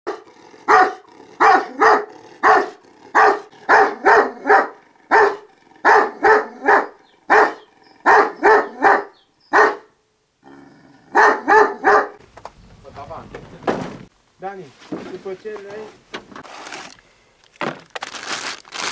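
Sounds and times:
large dog barking: 0:00.1 - 0:10.0, 0:10.9 - 0:12.2.

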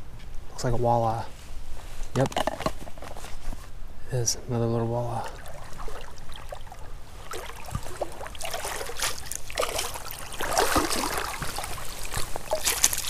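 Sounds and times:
water dripping: 0:05.1 - 0:13.0
fish splashing at the surface: 0:05.2 - 0:13.0.

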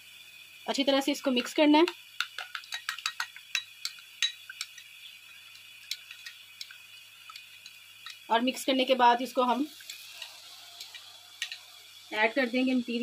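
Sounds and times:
utensil clinking against container: 0:02.2 - 0:08.3, 0:09.8 - 0:11.7.

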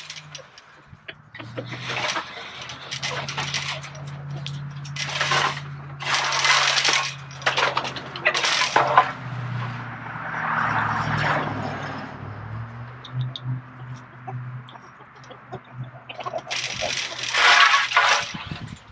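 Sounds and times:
wooden board scraping chain-link fence: 0:00.0 - 0:09.8, 0:13.1 - 0:18.9.

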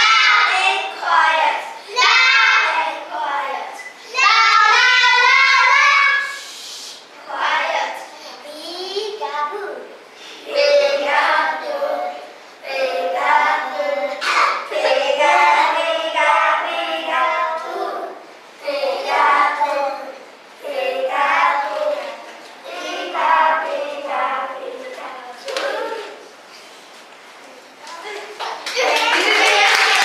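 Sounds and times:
children singing: 0:00.0 - 0:06.6, 0:10.3 - 0:26.3.

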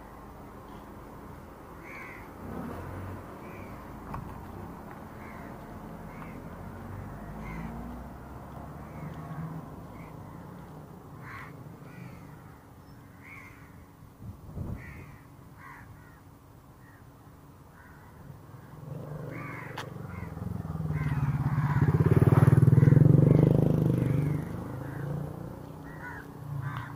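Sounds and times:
low outdoor rumble: 0:00.0 - 0:26.9
crows cawing: 0:01.8 - 0:02.4, 0:03.4 - 0:03.8, 0:05.2 - 0:07.9, 0:09.9 - 0:13.9, 0:14.8 - 0:17.1, 0:17.7 - 0:26.9.

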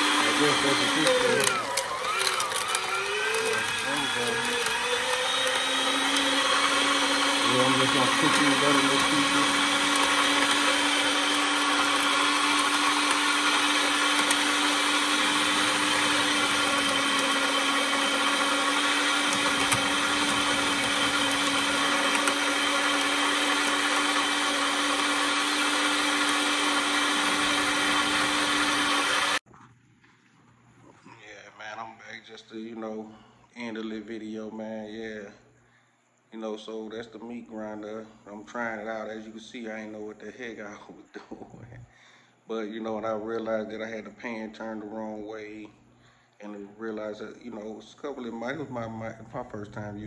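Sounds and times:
electric meat grinder humming: 0:00.0 - 0:29.4.

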